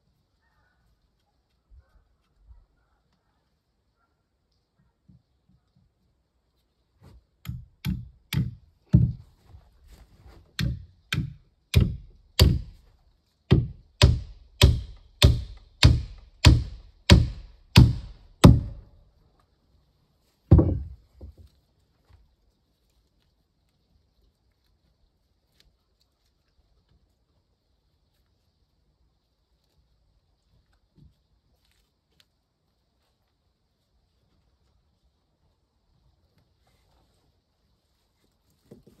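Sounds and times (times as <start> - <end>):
heavy blows on wood: 10.3 - 12.9, 13.5 - 19.0, 20.5 - 21.4.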